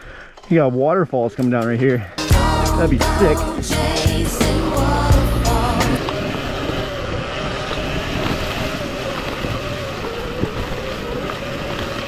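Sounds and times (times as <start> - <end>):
electric motor whine: 3.5 - 12.0
chain and tyres noise: 6.0 - 12.0.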